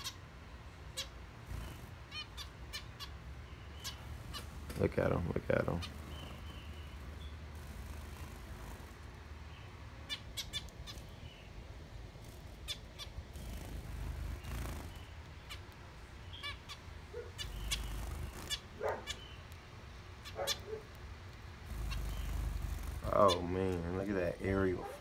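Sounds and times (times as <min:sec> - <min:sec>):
low steady hum: 0:00.0 - 0:25.0
finches short sharp calls: 0:16.3 - 0:19.5, 0:21.7 - 0:25.0.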